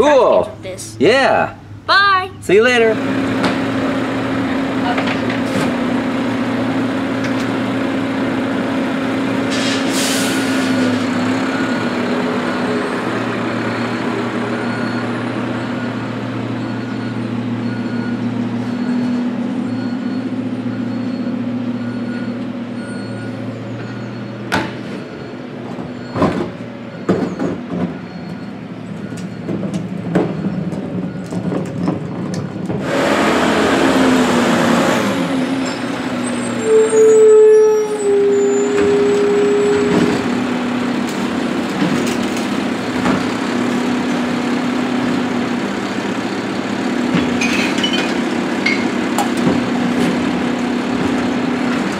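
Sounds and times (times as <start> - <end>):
diesel truck engine running: 0.0 - 51.9.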